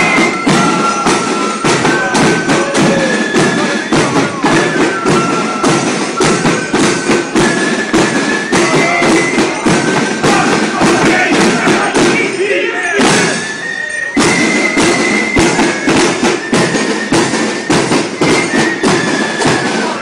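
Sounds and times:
flutes playing march tune: 0:00.0 - 0:20.0
snare drums: 0:00.0 - 0:20.0.

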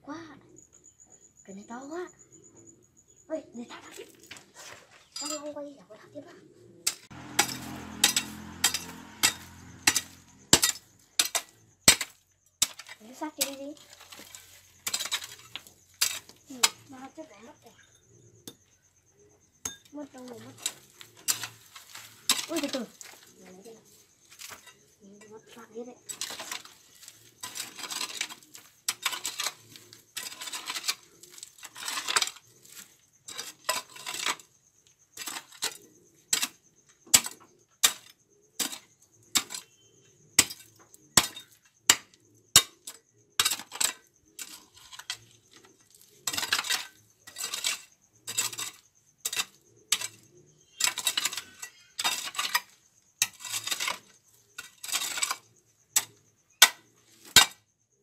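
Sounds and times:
metal hoe chopping stony soil: 0:06.9 - 0:17.0, 0:19.6 - 0:23.6, 0:26.0 - 0:34.5, 0:35.2 - 0:39.8, 0:40.4 - 0:57.6.

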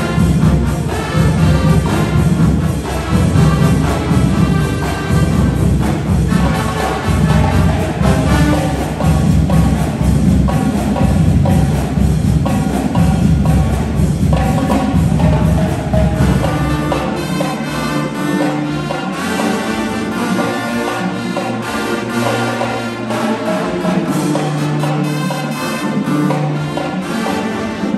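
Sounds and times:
bass drums: 0:00.0 - 0:17.6
horns holding notes: 0:00.0 - 0:27.9
marching band playing: 0:00.0 - 0:27.9.

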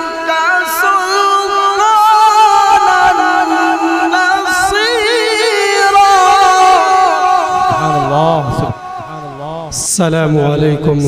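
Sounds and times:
man singing unaccompanied: 0:00.0 - 0:11.0.

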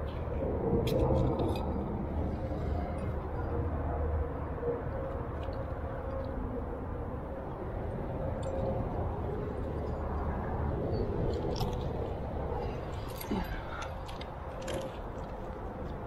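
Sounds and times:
steady low rumble: 0:00.0 - 0:16.0
climbing gear clinking: 0:09.6 - 0:16.0.

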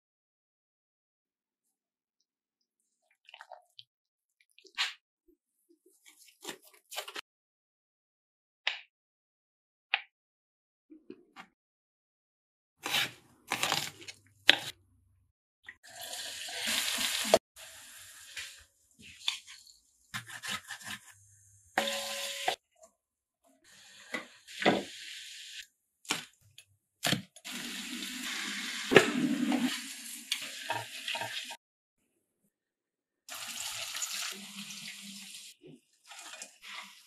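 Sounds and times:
garlic sizzling in hot oil: 0:15.9 - 0:18.6, 0:33.3 - 0:35.5.

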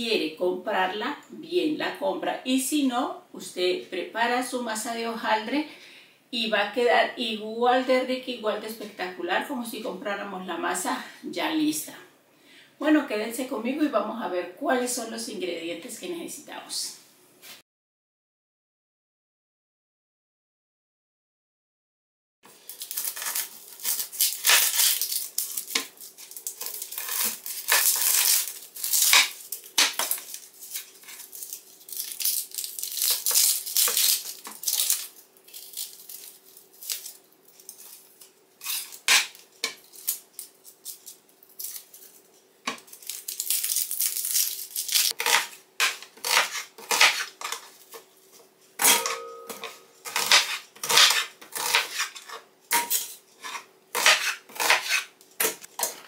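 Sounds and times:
peeling and handling onions: 0:22.5 - 0:56.0.

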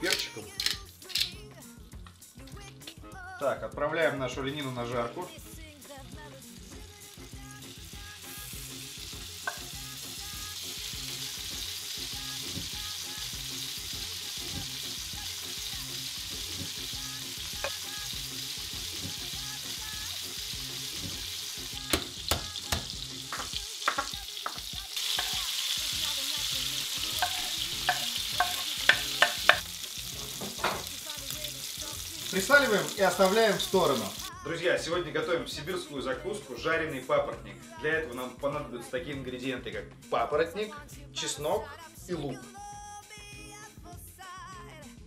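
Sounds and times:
meat sizzling in a pan: 0:06.0 - 0:34.3.

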